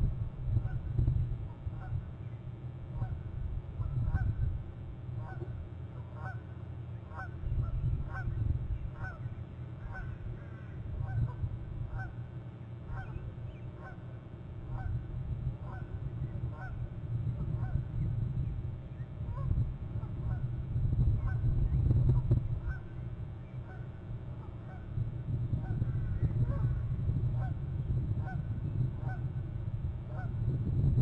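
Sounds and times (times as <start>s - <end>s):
low rumble: 0.0s - 2.2s, 14.6s - 31.0s
bird honking: 5.2s - 6.5s, 7.1s - 8.3s, 9.0s - 12.2s, 12.9s - 14.1s, 16.5s - 16.8s.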